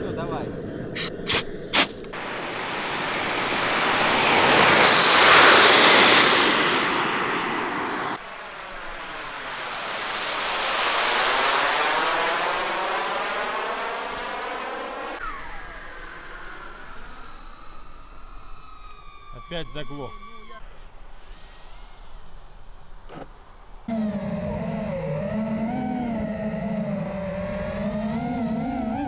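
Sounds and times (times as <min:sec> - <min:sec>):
model jet turbine engine: 0:00.0 - 0:29.0
faint falling whistle: 0:15.2 - 0:29.0.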